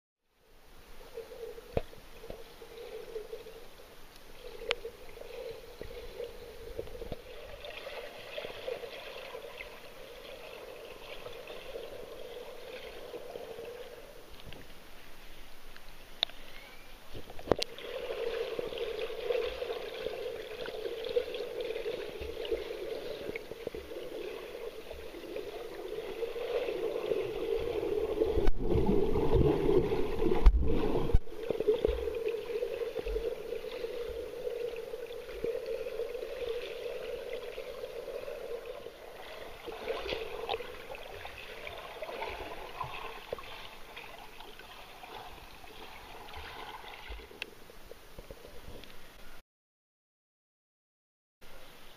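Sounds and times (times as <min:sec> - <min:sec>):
muffled water sloshing: 0:17.4 - 0:47.4.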